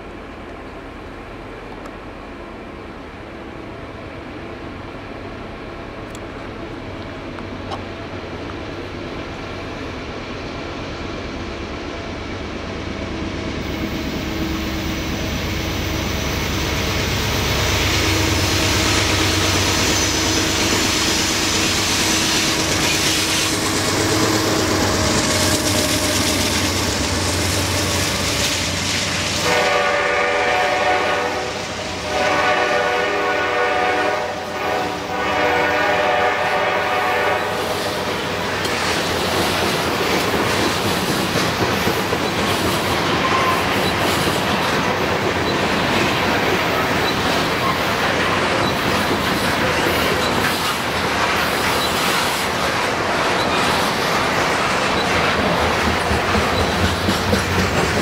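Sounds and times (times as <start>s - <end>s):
diesel locomotive engine rumble: 0.0s - 58.0s
train wheels clattering on rails: 16.7s - 31.2s, 36.0s - 58.0s
locomotive horn blasts: 29.4s - 37.7s.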